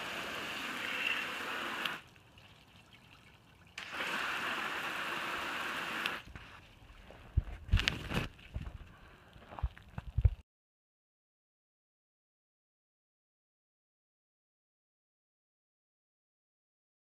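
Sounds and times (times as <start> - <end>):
hose spraying water onto plastic: 0.0 - 2.7, 3.8 - 6.7.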